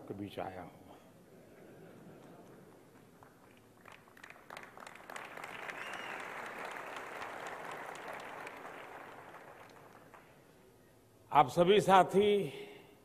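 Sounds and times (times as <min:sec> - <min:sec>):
audience applauding: 0:02.2 - 0:10.5.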